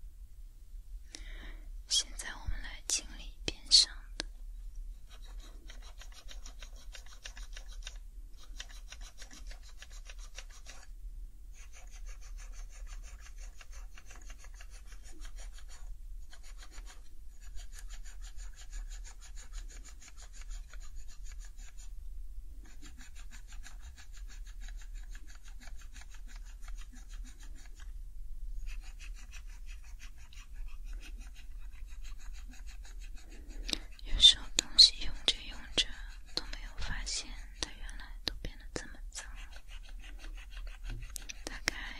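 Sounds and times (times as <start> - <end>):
wipe rubbing plastic keycaps: 5.1 - 10.9, 28.7 - 41.9.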